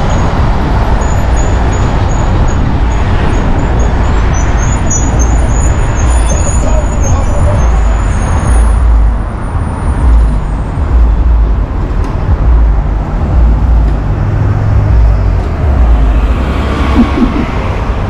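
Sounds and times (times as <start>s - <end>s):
street traffic: 0.0s - 18.0s
vehicle passing: 0.0s - 18.0s
wind rumble on microphone: 0.0s - 18.0s.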